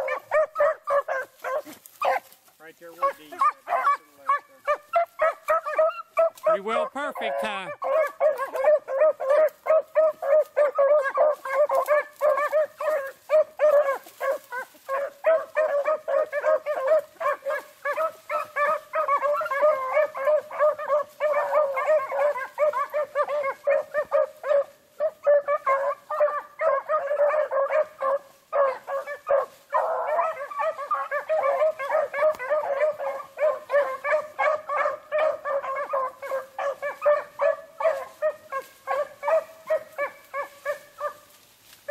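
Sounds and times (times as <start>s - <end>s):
pack of dogs baying: 0.0s - 41.9s.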